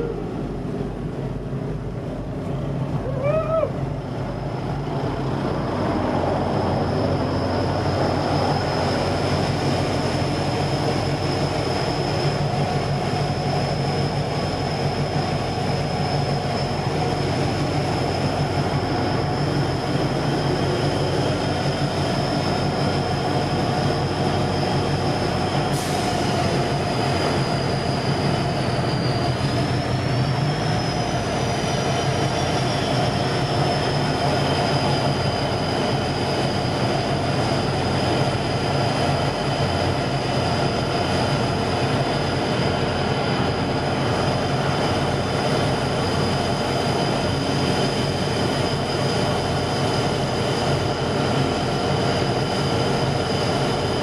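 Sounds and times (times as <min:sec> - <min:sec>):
diesel engines droning: 0:00.0 - 0:54.0
high engine whine: 0:00.0 - 0:54.0.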